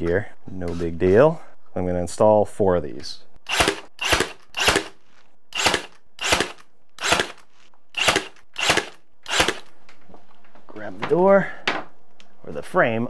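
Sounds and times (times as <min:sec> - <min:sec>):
brad nailer firing: 0:03.5 - 0:09.7.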